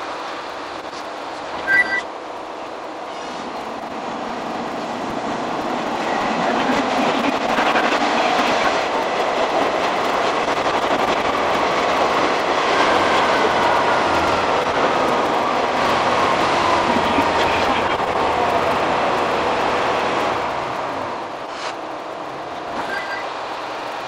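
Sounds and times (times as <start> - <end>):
train wheels rumbling on rails: 0.0 - 24.0.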